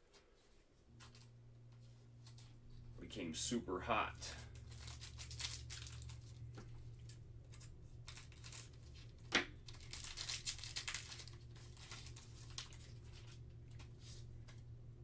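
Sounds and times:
foil wrapper crinkling: 4.2s - 14.3s
foil wrapper ripping: 4.3s - 13.9s.

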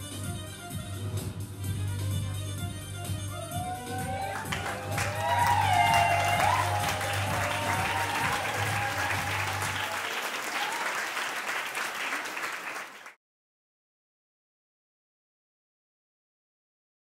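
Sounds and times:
dance music: 0.0s - 10.1s
audience applauding: 3.6s - 13.2s.

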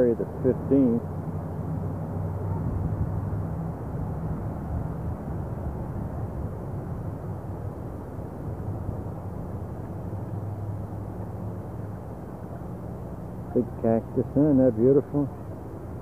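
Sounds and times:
wind buffeting microphone: 1.8s - 12.9s.

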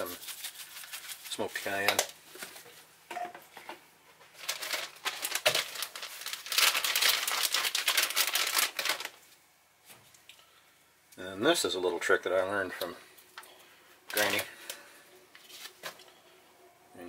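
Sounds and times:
packaging crinkling: 0.0s - 2.8s, 4.2s - 9.4s.

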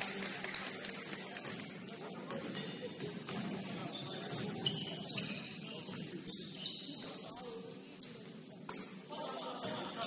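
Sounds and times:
shoes squeaking on hardwood floor: 2.3s - 7.9s.

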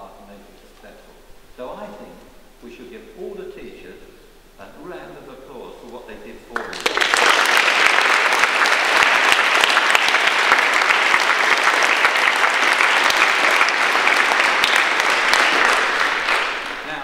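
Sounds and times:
audience applauding: 6.6s - 17.0s.

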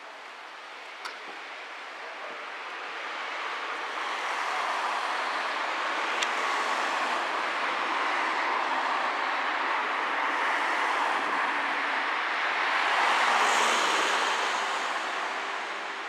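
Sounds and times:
car passing by: 4.0s - 16.0s.

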